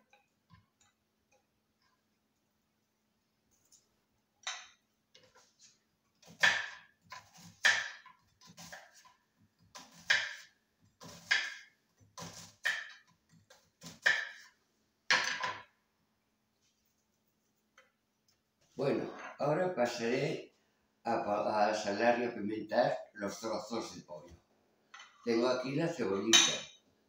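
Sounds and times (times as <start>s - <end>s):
kitchen knocks and clatters: 6.2s - 15.8s, 26.3s - 26.8s.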